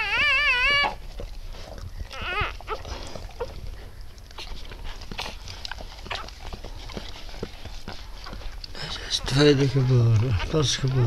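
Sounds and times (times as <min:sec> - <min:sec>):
puppy crying: 0:00.0 - 0:01.3, 0:02.0 - 0:03.6
dog licking with wet clicks: 0:00.0 - 0:11.0.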